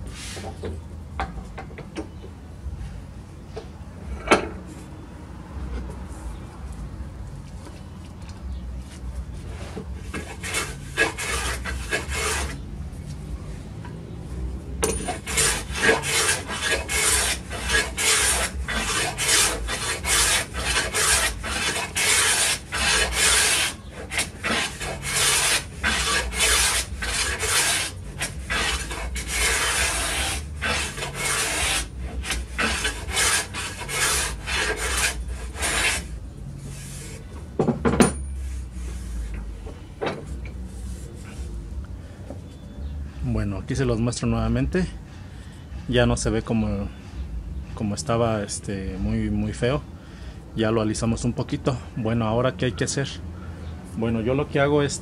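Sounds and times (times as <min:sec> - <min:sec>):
hand plane scraping board edge: 0:00.1 - 0:00.7, 0:09.5 - 0:12.6, 0:14.8 - 0:37.3, 0:38.1 - 0:39.5.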